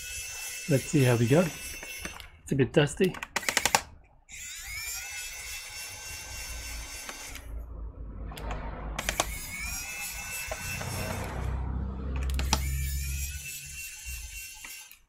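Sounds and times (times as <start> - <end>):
electric screwdriver whirring: 0.0 - 2.4, 3.1 - 7.5, 8.5 - 11.5, 12.2 - 15.0
sharp clicks: 1.7 - 2.4, 3.0 - 4.0, 8.3 - 9.4, 12.2 - 12.8.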